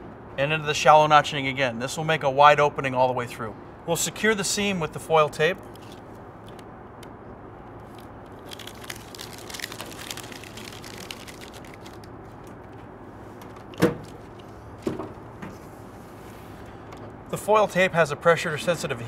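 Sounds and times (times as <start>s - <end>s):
foil tape crinkling: 7.8s - 12.8s.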